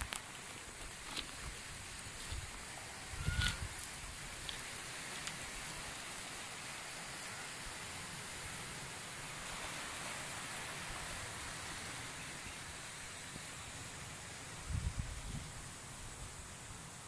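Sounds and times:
waves washing over stones: 3.8s - 14.6s.

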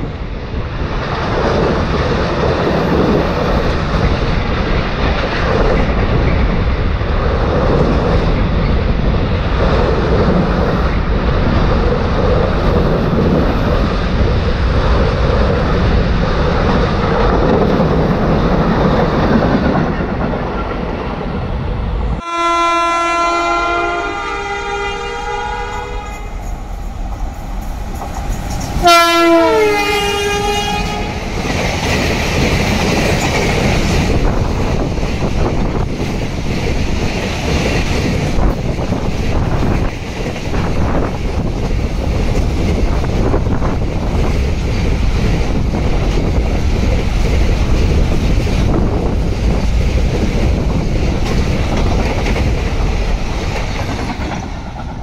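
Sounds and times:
freight train rushing past: 0.0s - 55.0s
locomotive horn blasts: 22.2s - 26.3s, 28.8s - 31.2s.

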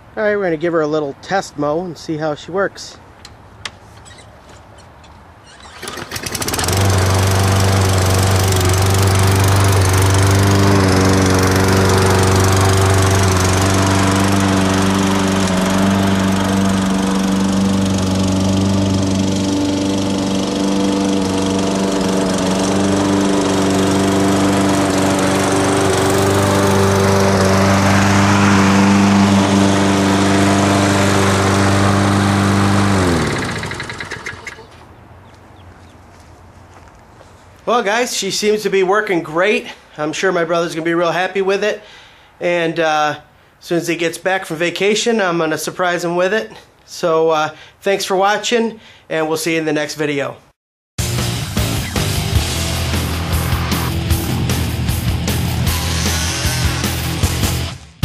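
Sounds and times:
lawn mower engine running: 5.4s - 34.8s, 51.0s - 58.0s
engine spinning down: 5.6s - 34.7s, 51.0s - 58.0s.

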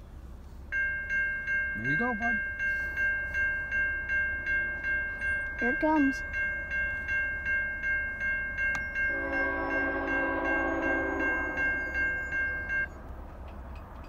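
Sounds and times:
railroad crossing bells clanging: 0.2s - 14.0s
train horn chord: 9.1s - 12.9s.

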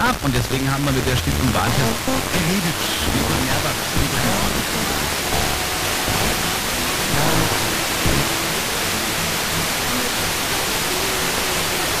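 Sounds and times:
faint music: 0.0s - 12.0s
radio static hiss: 0.0s - 12.0s.

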